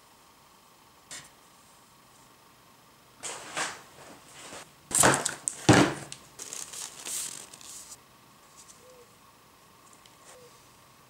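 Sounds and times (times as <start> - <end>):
loud knocks on worktable: 4.9 - 6.1
hands rustling and scraping: 6.4 - 8.9.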